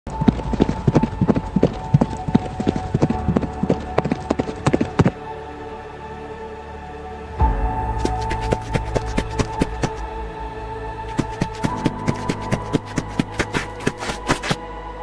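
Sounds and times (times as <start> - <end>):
galloping horse hoofbeats: 0.1 - 5.2, 8.0 - 10.0, 11.1 - 14.6
held music drone: 0.1 - 15.0.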